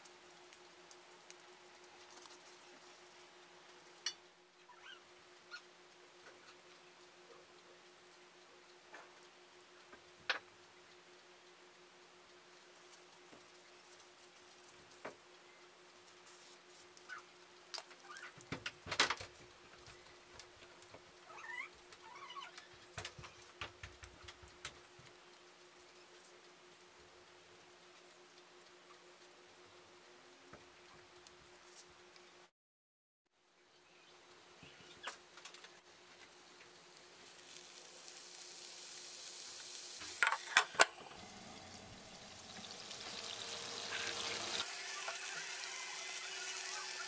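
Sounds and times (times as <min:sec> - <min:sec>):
leaves crinkling: 0:00.0 - 0:04.0, 0:16.0 - 0:18.4, 0:34.8 - 0:40.5
faint steady hum: 0:00.0 - 0:32.5
faint chirp: 0:33.6 - 0:35.2.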